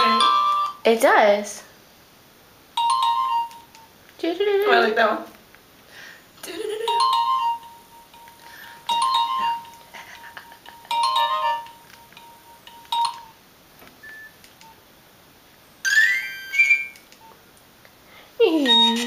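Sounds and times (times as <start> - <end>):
phone ringtone chiming: 0.0 - 0.8, 2.8 - 3.8, 6.8 - 13.4, 15.9 - 17.0, 18.6 - 19.0.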